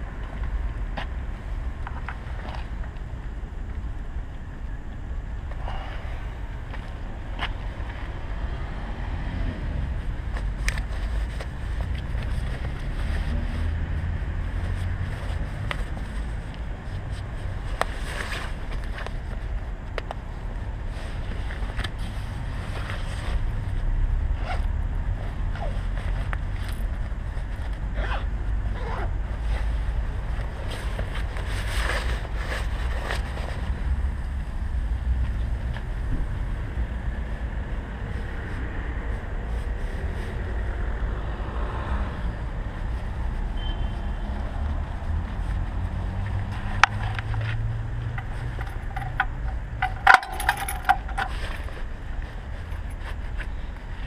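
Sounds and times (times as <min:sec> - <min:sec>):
distant traffic rumble: 0:00.0 - 0:54.0
handling clicks and rustles: 0:10.0 - 0:23.8, 0:24.4 - 0:27.9, 0:28.7 - 0:33.8, 0:44.9 - 0:54.0.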